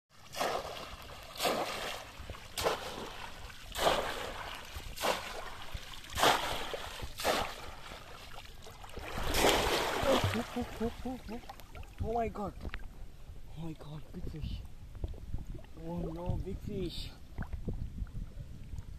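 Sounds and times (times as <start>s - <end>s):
fish trap splashing into water: 0.3s - 7.8s, 9.0s - 10.8s.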